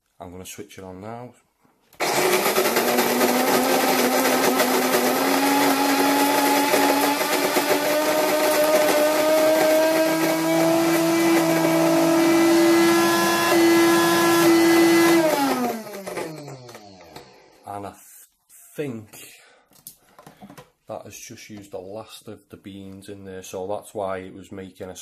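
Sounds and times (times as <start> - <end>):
coffee grinder motor whine: 2.0 - 17.6.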